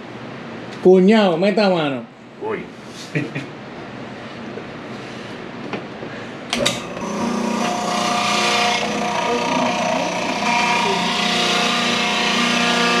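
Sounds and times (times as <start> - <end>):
food grinder motor whining: 6.8 - 13.0.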